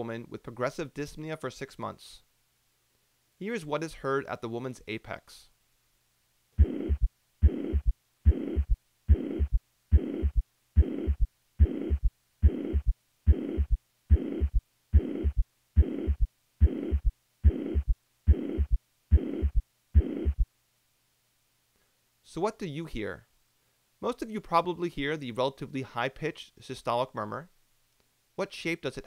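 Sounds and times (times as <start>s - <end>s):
heartbeat through a stethoscope: 6.6s - 20.5s
high-pitched heart murmur: 6.6s - 20.5s
low-pitched extra heart sound: 6.6s - 20.5s.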